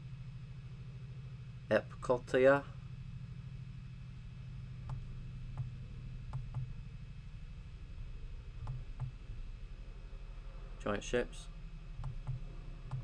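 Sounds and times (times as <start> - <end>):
steady low hum: 0.0 - 13.0
computer mouse clicking: 8.6 - 9.2, 12.0 - 13.0.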